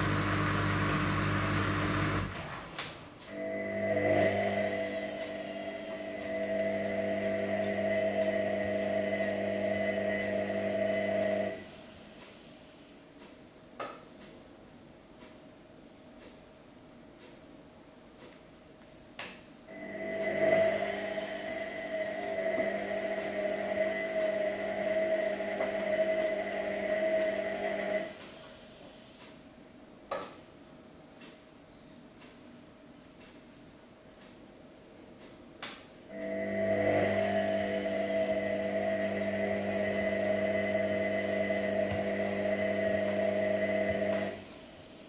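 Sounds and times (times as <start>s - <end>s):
washing machine motor whine: 0.0s - 2.6s, 3.3s - 11.8s, 19.7s - 28.3s, 36.1s - 44.8s.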